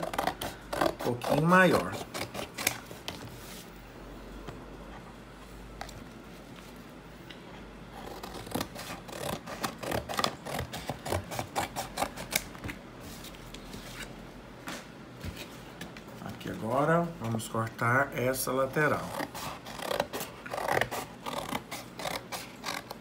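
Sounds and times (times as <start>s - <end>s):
scissors snipping cardboard: 0.0s - 3.2s, 8.0s - 12.8s, 19.1s - 23.0s.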